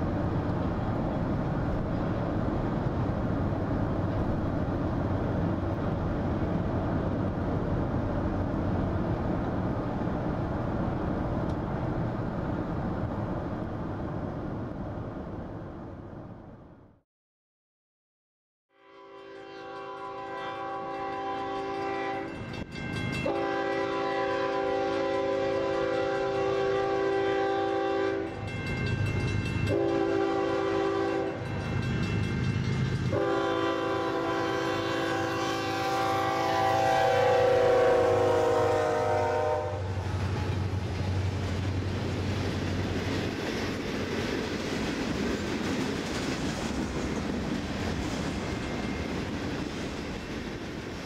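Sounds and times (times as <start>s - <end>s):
locomotive air horn: 18.7s - 22.4s, 23.2s - 28.4s, 29.7s - 31.5s, 33.1s - 39.9s
train wheels clattering over rails: 39.9s - 51.0s.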